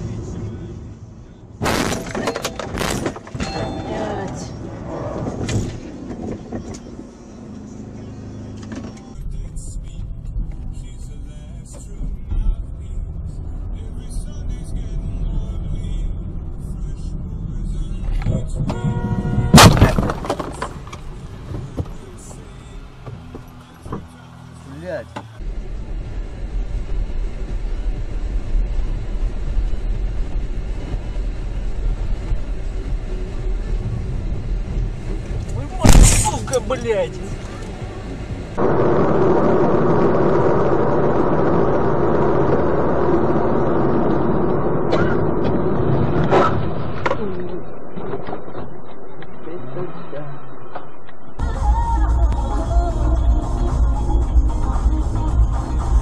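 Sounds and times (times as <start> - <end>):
car road noise: 0.0 - 56.0
loud car crash: 1.6 - 4.2, 18.6 - 21.2, 35.6 - 36.8, 44.0 - 49.1
car horn: 18.6 - 20.4.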